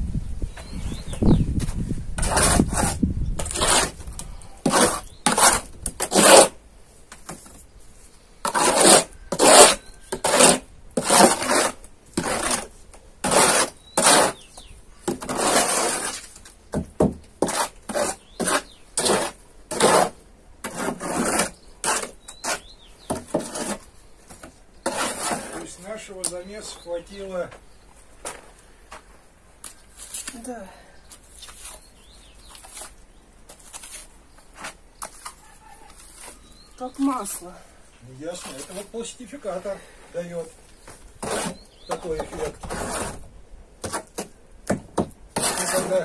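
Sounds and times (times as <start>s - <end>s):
trowel scraping plaster: 2.2s - 6.6s, 8.4s - 26.1s, 41.2s - 43.2s, 43.8s - 44.4s, 45.0s - 46.0s.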